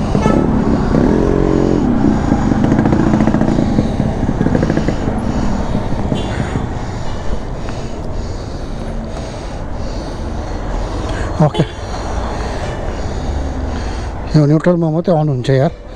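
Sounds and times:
motorcycle engine running: 0.0s - 8.1s
street traffic: 0.0s - 15.9s.

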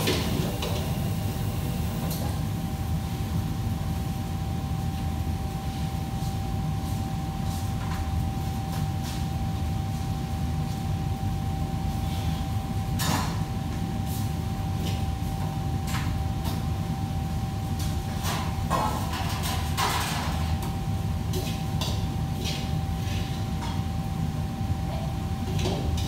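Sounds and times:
kitchen machinery humming: 0.0s - 26.0s
pans and utensils clattering: 18.2s - 20.6s.

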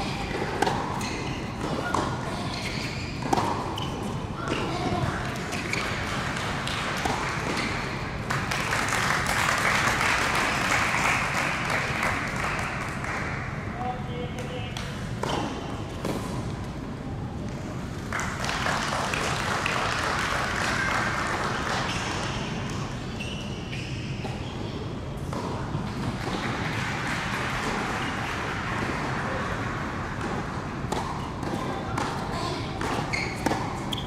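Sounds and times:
crowd noise: 0.0s - 9.3s
tennis ball bouncing: 0.3s - 7.7s, 30.2s - 34.0s
spectators clapping: 8.2s - 13.4s, 18.1s - 22.5s, 26.4s - 29.9s.

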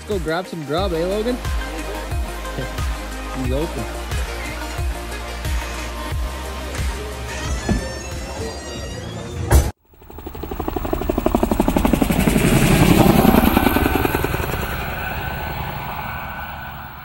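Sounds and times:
motor passing by: 9.9s - 17.0s.

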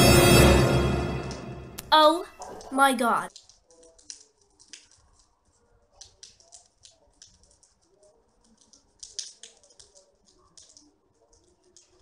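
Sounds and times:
cat chewing with crunching clicks: 3.3s - 12.0s.

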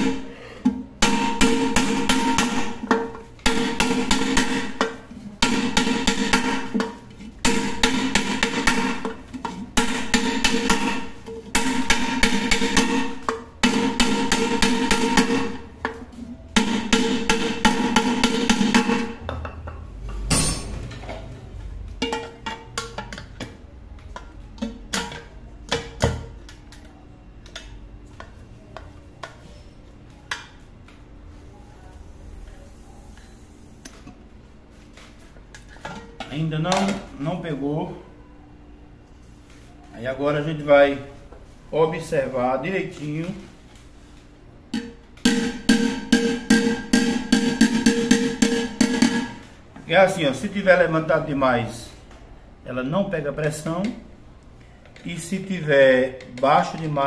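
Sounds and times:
music with percussive beat: 45.2s - 49.3s.

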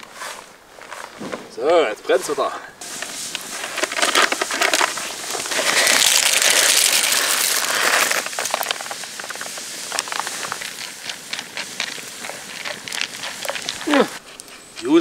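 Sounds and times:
fat sizzling in a frying pan: 2.8s - 14.2s.

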